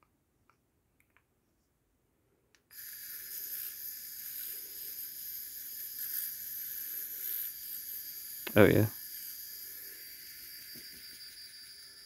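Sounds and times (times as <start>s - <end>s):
rotary tool high-pitched whine: 2.7s - 12.0s.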